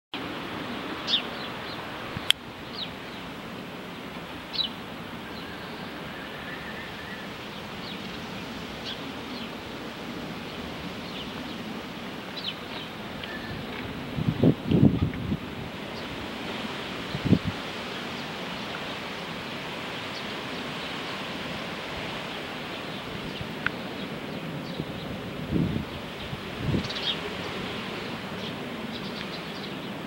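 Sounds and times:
small birds chirping: 0.2 - 14.0, 15.8 - 30.0
rushing background noise: 0.2 - 30.0
wind knocking on microphone: 13.5 - 15.6.

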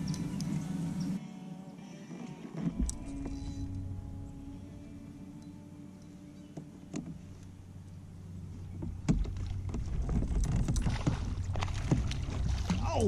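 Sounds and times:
low steady rumble: 2.8 - 12.9.

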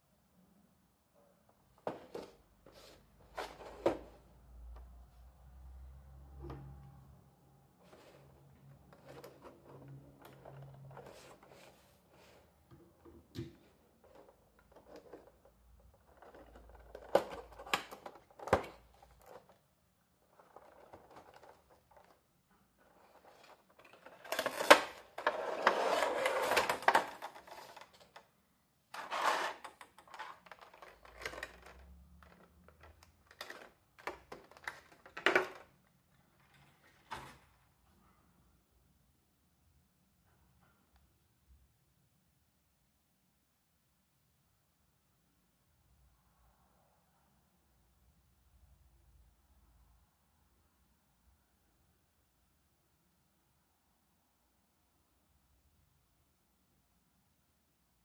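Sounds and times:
plastic insert rustling: 1.8 - 4.3, 7.8 - 19.6, 20.2 - 22.2, 22.8 - 28.3, 28.9 - 37.6
cardboard clicks and scrapes: 7.8 - 12.5, 22.8 - 28.2, 29.0 - 32.5.

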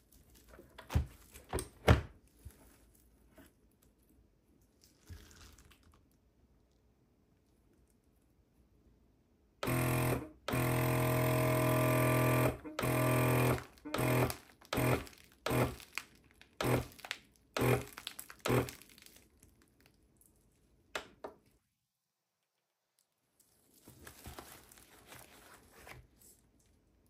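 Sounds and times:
vacuum sealer pump humming: 9.6 - 15.8, 16.6 - 17.0, 17.6 - 18.8.

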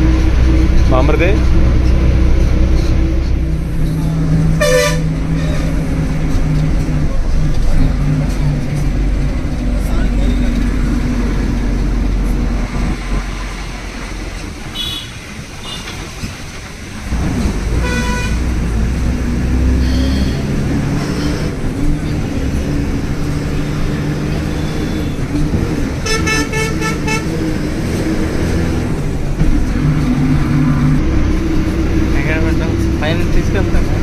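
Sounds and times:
vehicle engine droning: 0.0 - 34.0
vehicle horns tooting: 4.5 - 5.8, 14.7 - 16.0, 17.8 - 18.5, 19.8 - 21.2, 26.0 - 27.4.

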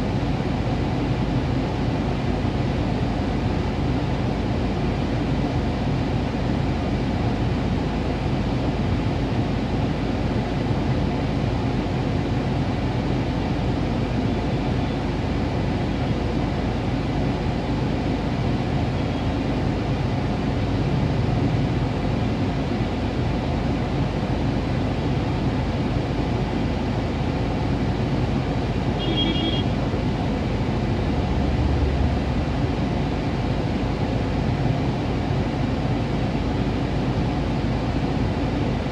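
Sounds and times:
street traffic hum: 0.0 - 38.9
car engine idling: 10.9 - 38.9.

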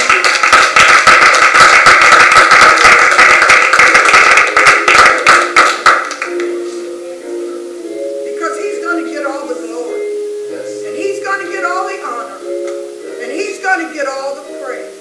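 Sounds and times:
group hand clapping: 0.0 - 6.6
soft background music: 3.8 - 15.0.

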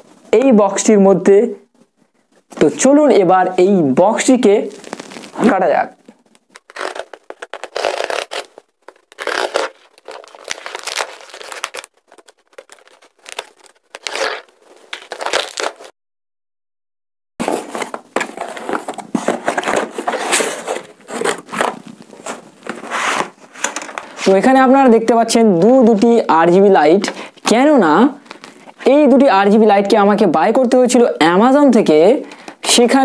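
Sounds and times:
cardboard box tearing and rustling: 6.6 - 15.9, 17.4 - 24.3.

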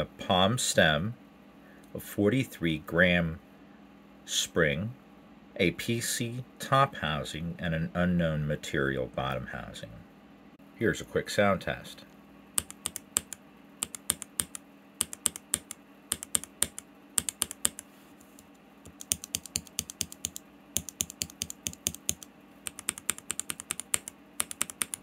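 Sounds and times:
keyboard switches clacking: 12.6 - 17.8, 18.9 - 25.0.

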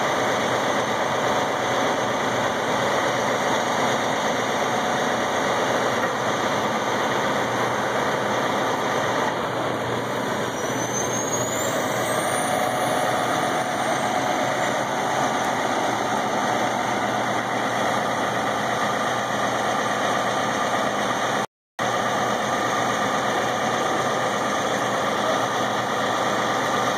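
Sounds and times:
truck diesel engine running: 0.0 - 26.9
faint high whistle: 10.5 - 13.6.

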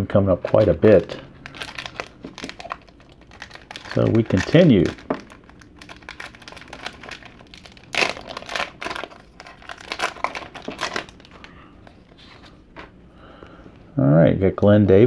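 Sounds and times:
foil pack tearing and crinkling: 0.5 - 11.5.

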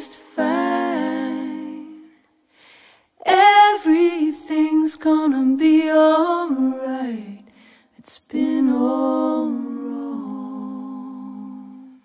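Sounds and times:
breath: 2.5 - 3.2, 7.5 - 8.0.

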